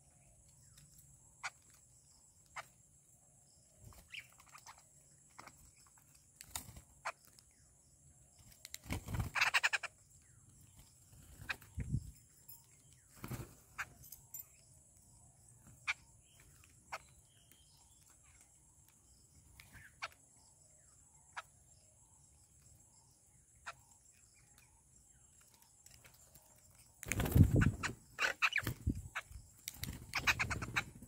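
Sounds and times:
harsh bird chatter: 3.8s - 7.5s, 8.4s - 14.7s, 25.6s - 31.0s
wings fluttering: 3.8s - 7.6s, 8.3s - 14.2s, 25.3s - 31.0s
birds pecking on a ledge: 8.1s - 14.4s, 24.3s - 31.0s.

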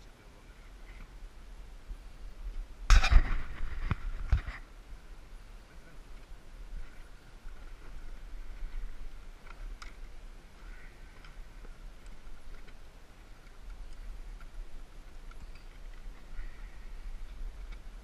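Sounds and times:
steady low rumble: 0.0s - 18.0s
light clicks and ticks: 11.1s - 16.3s, 17.2s - 18.0s.

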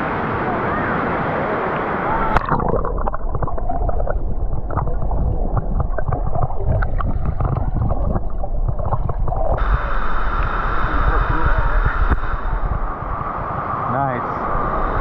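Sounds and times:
rushing water: 0.0s - 15.0s
underwater gurgling and bubbling: 2.1s - 13.8s
low rumble: 2.4s - 15.0s.

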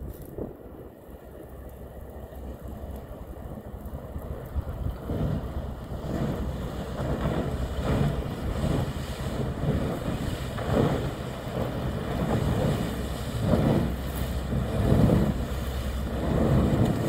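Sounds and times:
water and ice churning: 0.0s - 17.0s
wind buffeting microphone: 0.0s - 17.0s
tugboat engine running: 1.0s - 17.0s.

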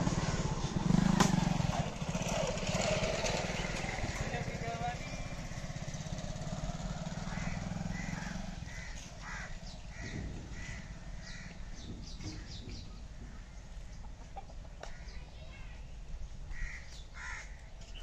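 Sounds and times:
vehicle engine rumbling: 0.0s - 18.0s
crow cawing: 7.1s - 11.6s, 16.5s - 17.6s.

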